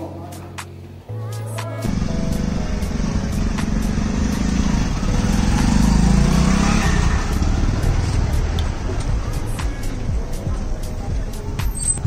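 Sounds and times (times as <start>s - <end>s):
motorcycle passing by: 1.8s - 9.8s.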